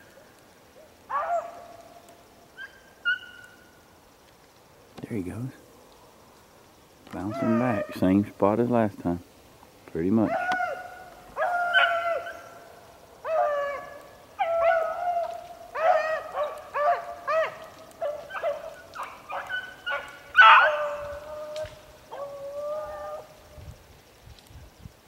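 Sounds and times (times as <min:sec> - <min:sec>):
hounds baying: 0:01.1 - 0:01.8, 0:07.2 - 0:08.1, 0:10.2 - 0:12.6, 0:13.2 - 0:23.3.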